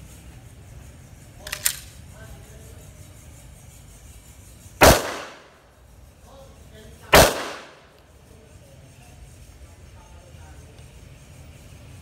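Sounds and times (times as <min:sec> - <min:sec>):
pistol shots with echo: 0:04.8 - 0:05.5, 0:07.1 - 0:07.9.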